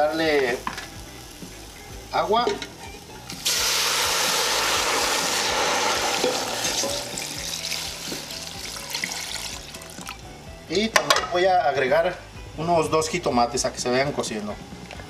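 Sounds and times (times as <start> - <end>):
water pouring into a metal pot: 3.4 - 10.2.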